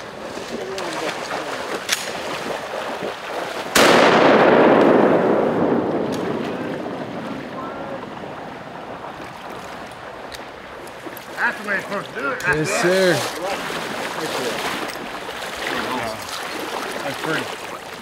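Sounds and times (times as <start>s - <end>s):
shotgun blast: 3.8s - 7.5s
rolling echo: 3.8s - 10.8s.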